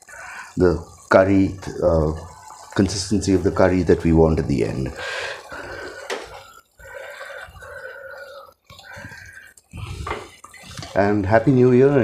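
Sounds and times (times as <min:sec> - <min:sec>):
curry bubbling and sizzling: 0:00.0 - 0:12.0.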